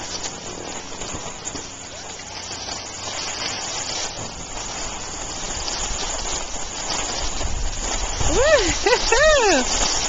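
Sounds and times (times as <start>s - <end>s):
skis sliding over snow: 0.0s - 10.0s
wind on microphone: 5.4s - 10.0s.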